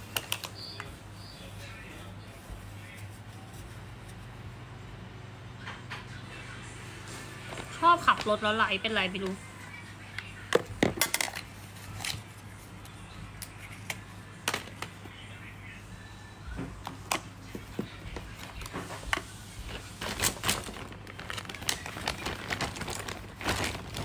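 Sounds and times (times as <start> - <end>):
small objects clicking and rustling: 10.5 - 12.2, 20.0 - 24.0.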